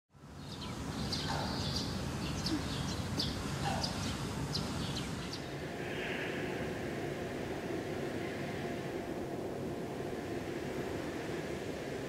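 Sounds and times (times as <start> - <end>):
low outdoor background rumble: 0.2 - 12.0
small birds chirping: 0.3 - 6.4.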